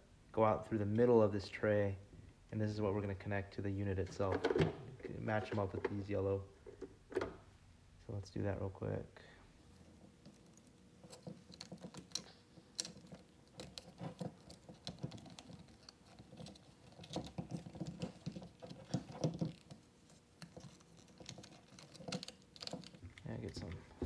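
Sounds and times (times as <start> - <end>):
plastic battery cases clicking and scraping: 10.2 - 23.8.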